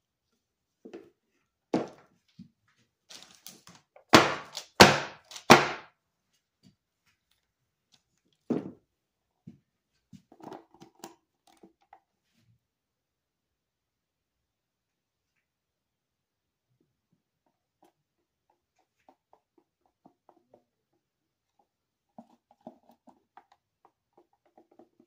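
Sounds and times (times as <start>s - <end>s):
thuds and knocks on tabletop: 8.5s - 8.8s.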